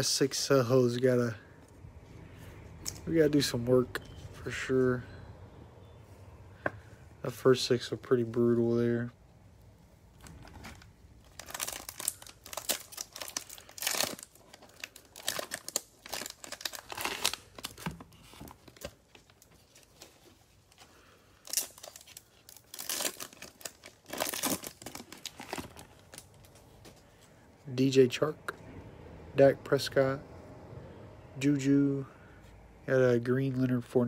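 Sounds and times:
plastic wrappers crinkling and tearing: 0:10.2 - 0:27.0.

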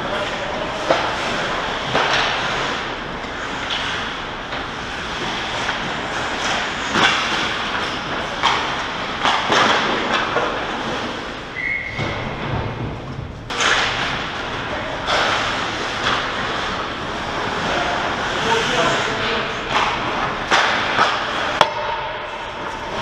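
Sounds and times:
skates scraping ice: 0:00.0 - 0:12.9, 0:13.5 - 0:23.0
sticks and puck knocking: 0:00.2 - 0:11.0, 0:19.6 - 0:23.0.

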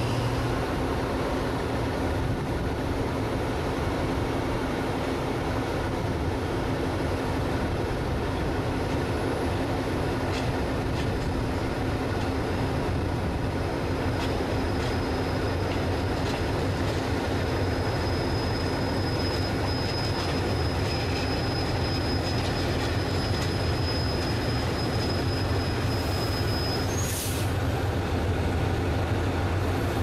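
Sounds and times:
diesel locomotive engine drone: 0:00.0 - 0:30.0
high-pitched squeal: 0:16.8 - 0:27.6.

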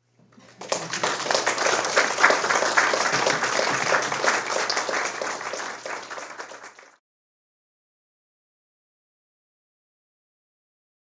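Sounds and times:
audience applauding: 0:00.4 - 0:07.0.

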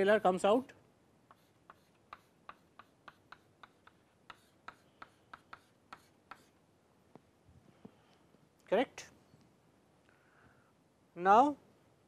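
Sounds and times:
chalk tapping on chalkboard: 0:01.3 - 0:06.6.

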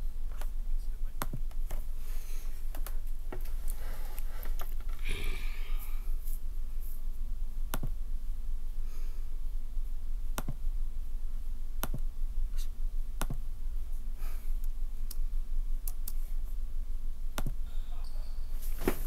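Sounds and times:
steady low hum: 0:00.0 - 0:19.0
computer mouse clicks: 0:15.8 - 0:16.2, 0:17.4 - 0:17.6.

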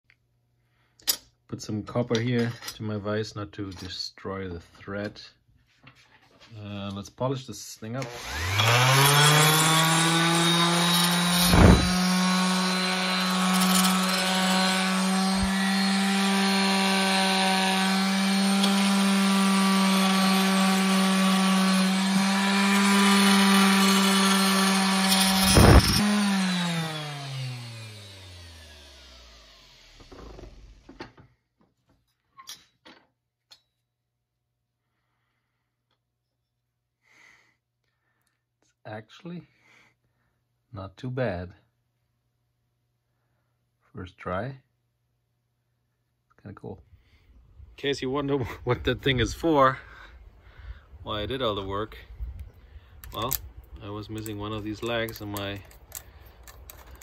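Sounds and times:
orbit sander whining: 0:08.0 - 0:30.9.

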